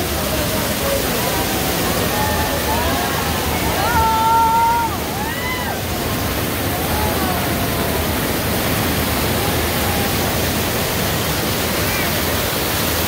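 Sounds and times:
waterfall rushing over boulders: 0.0s - 13.0s.

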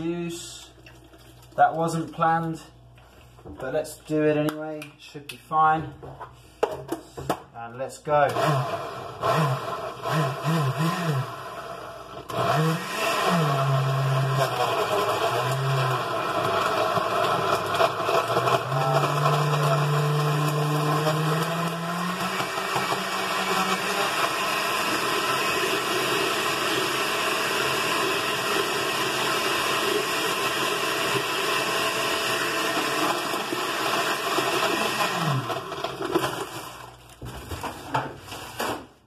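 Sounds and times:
blender whirring: 8.2s - 37.2s.

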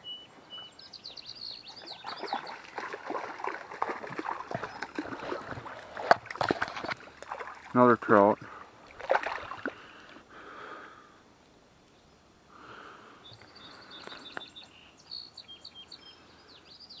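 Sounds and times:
songbird chirping: 0.0s - 6.0s, 11.8s - 12.4s, 13.1s - 17.0s.

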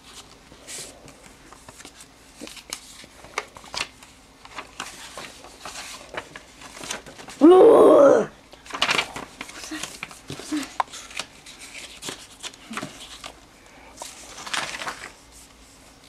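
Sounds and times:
paper rustling and clicks: 1.0s - 7.4s, 8.5s - 13.4s, 14.0s - 15.6s
voice-like cry: 7.4s - 8.4s.

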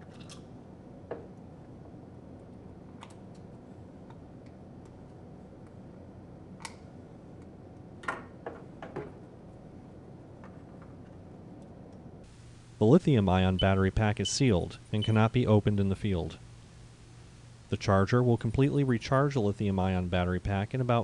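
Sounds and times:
faint steady hiss: 12.2s - 21.0s.

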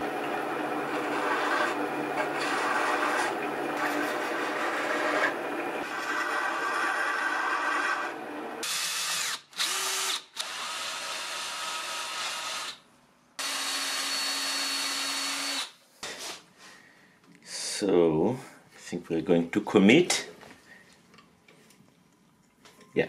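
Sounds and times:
lathe spinning: 0.0s - 8.6s
cordless drill drilling: 6.0s - 12.8s, 13.4s - 15.8s.

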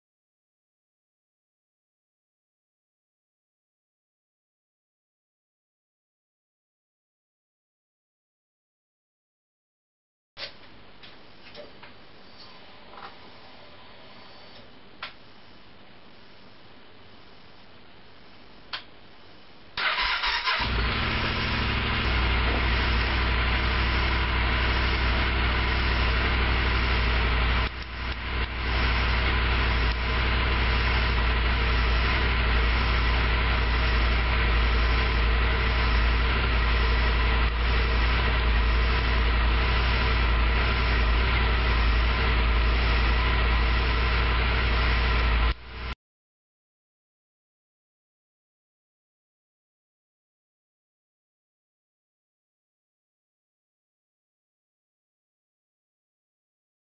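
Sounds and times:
electric starter cranking: 19.8s - 45.5s
motorcycle engine idling: 19.9s - 45.9s.

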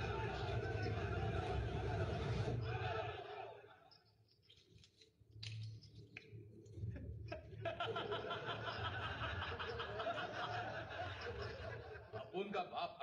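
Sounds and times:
man laughing heartily: 7.3s - 12.2s.

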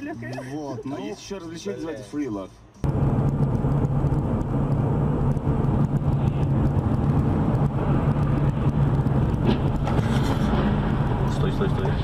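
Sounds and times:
car engine hum: 0.0s - 12.0s
road rumble: 0.0s - 12.0s.

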